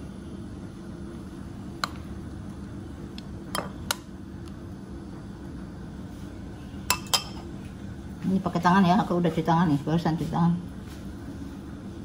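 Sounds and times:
steady low hum: 0:00.0 - 0:12.0
kitchenware clinking on glass bowls: 0:06.9 - 0:07.4.

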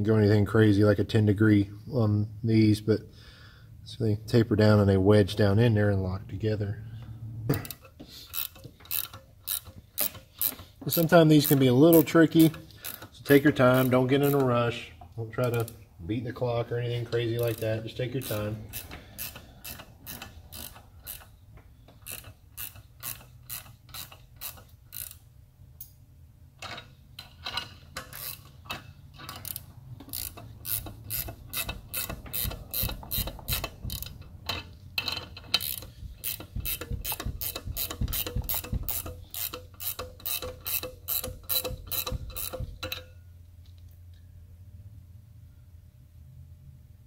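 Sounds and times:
socket ratchet clicking: 0:07.6 - 0:14.5, 0:17.4 - 0:26.0, 0:26.6 - 0:43.2.

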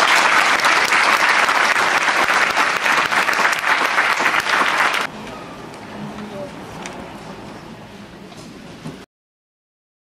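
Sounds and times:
large crowd applauding: 0:00.0 - 0:05.1.

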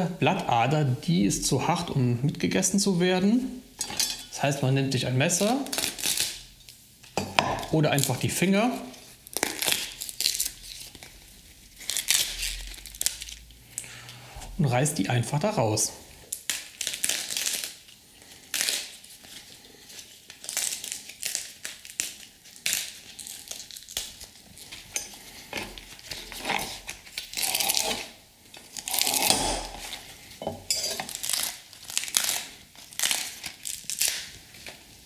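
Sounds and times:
kale leaves being torn: 0:05.4 - 0:06.5, 0:09.0 - 0:13.4, 0:16.3 - 0:30.1, 0:31.0 - 0:35.0.

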